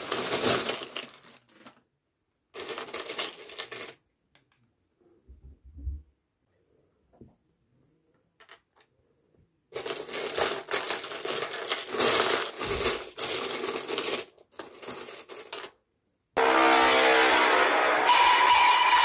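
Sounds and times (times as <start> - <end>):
plastic bricks clattering: 0.0 - 1.8, 9.7 - 15.8
loud steady pitched tone: 16.4 - 19.0.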